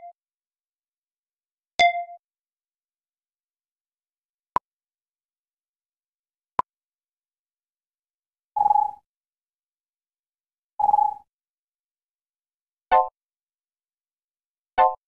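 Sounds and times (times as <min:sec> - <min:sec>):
electronic beeps: 0:08.6 - 0:09.0, 0:10.8 - 0:11.3.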